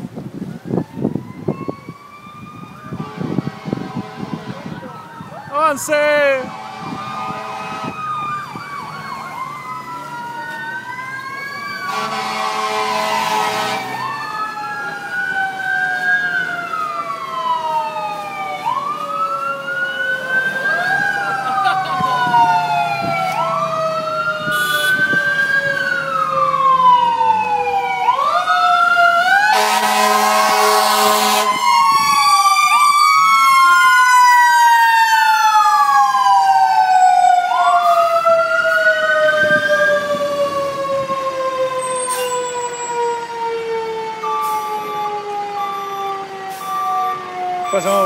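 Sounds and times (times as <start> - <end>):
fire engine sirens wailing: 0.0 - 48.0
horn blast: 6.4 - 8.0, 11.9 - 14.0, 24.5 - 25.0, 29.5 - 31.6.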